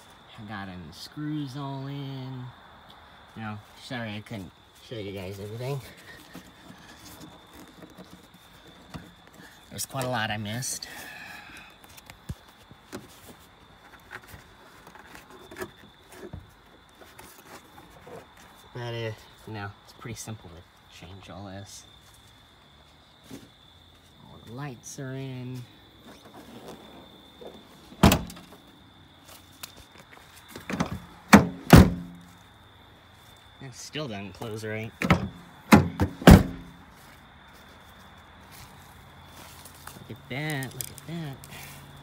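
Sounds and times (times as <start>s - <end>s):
liftgate thunking shut: 28.0s - 28.5s, 30.7s - 32.2s, 35.0s - 36.7s.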